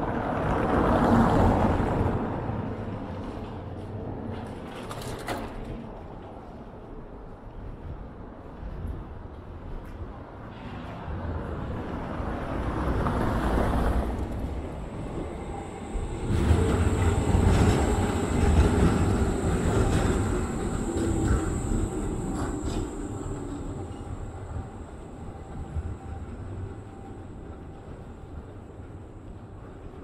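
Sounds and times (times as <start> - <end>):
tram wheels rumbling on rails: 0.0 - 30.0
tram high whine: 11.5 - 30.0.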